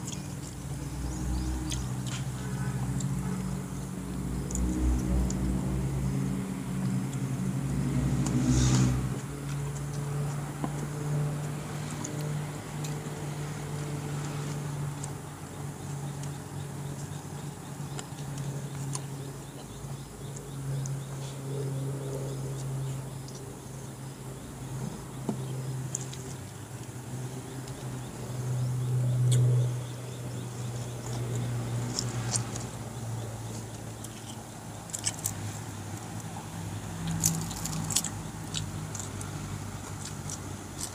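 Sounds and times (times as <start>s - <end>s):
person chewing: 1.4s - 5.5s, 37.0s - 40.9s.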